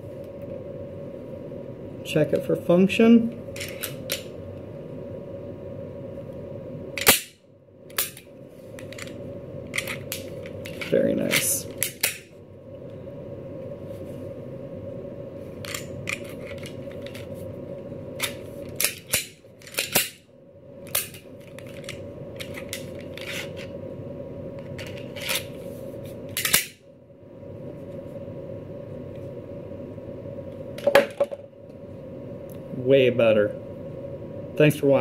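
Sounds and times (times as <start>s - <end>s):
pistol metallic clicks and snaps: 7.0s - 7.3s.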